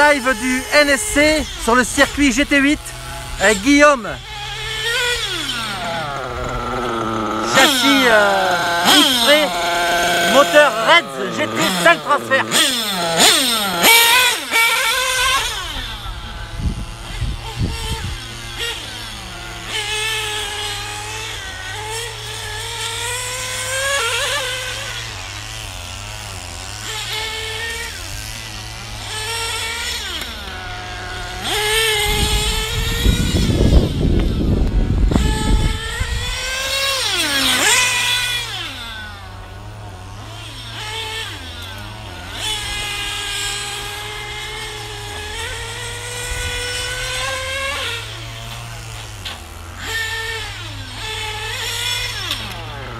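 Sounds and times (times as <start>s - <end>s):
model car engines screaming: 0.0s - 52.9s.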